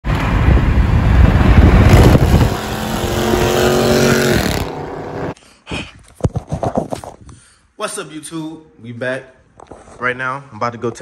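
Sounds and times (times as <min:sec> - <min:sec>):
wind rumble on microphone: 0:00.1 - 0:04.7
cars passing at highway speed: 0:00.1 - 0:05.4
steady engine drone: 0:00.1 - 0:05.4.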